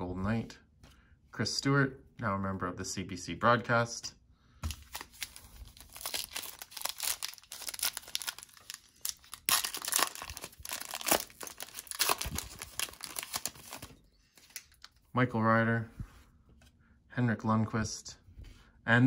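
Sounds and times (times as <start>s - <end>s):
foil wrapper crinkling and tearing: 4.6s - 15.0s.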